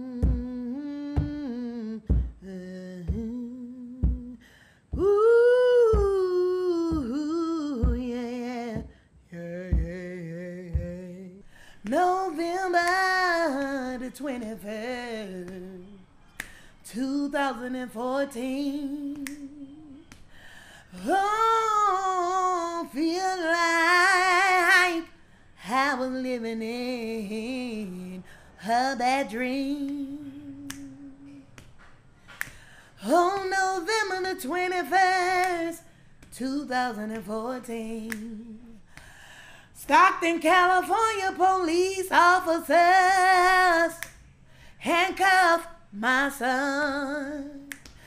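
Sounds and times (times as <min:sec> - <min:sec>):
soft low beat: 0:00.0 - 0:08.9, 0:09.6 - 0:11.2
woman humming and singing: 0:00.0 - 0:16.1.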